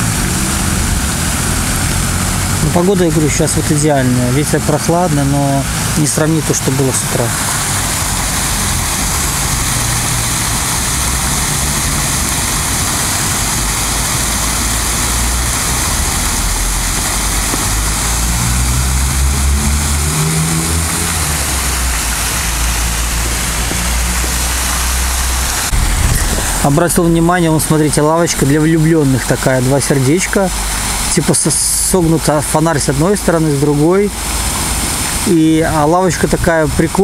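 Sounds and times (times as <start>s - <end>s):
wind rush across microphone: 21.1s - 28.3s.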